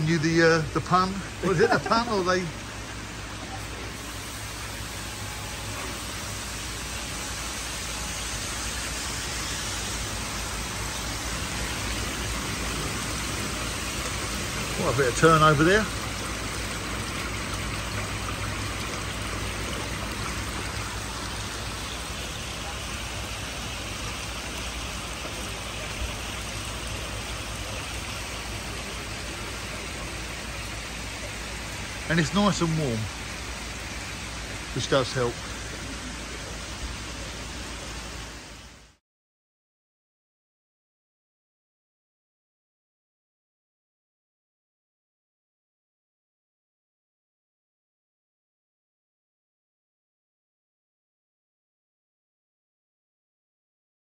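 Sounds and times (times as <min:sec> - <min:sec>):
water pouring into pond: 0:00.0 - 0:39.0.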